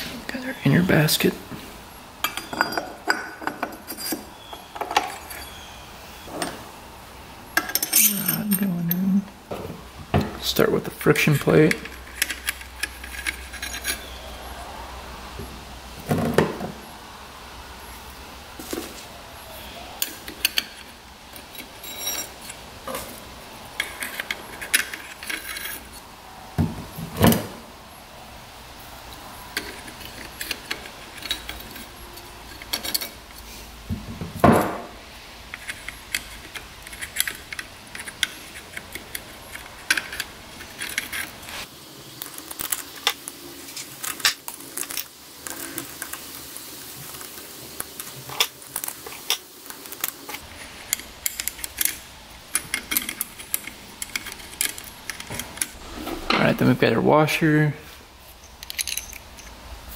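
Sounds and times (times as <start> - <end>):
metallic clinks of clutch plates: 58.4 - 59.6.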